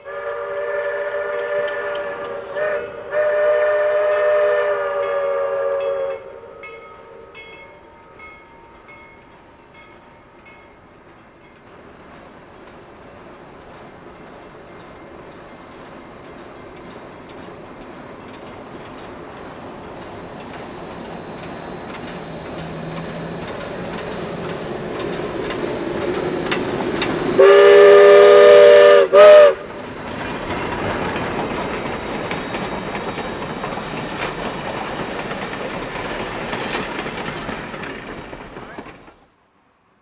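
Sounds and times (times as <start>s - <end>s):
train cars clattering: 0.0s - 6.0s, 6.7s - 39.4s
steam whistle blasts: 0.0s - 8.2s, 27.2s - 29.7s
steam locomotive running: 0.0s - 39.8s.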